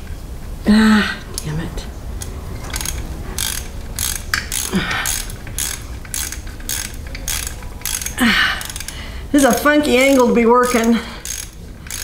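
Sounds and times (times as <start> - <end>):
socket ratchet clicking: 2.2 - 12.0.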